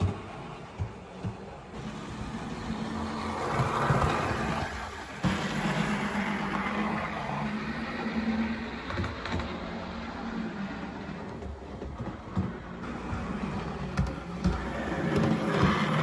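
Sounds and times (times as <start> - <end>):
wheel and track noise: 0.0 - 16.0
model train motor hum: 1.7 - 11.7, 12.6 - 16.0.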